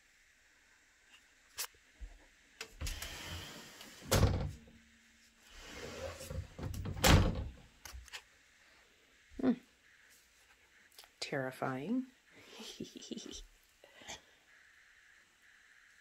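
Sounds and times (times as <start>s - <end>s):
closet doors sliding and knocking: 2.6s - 4.8s, 5.5s - 7.6s.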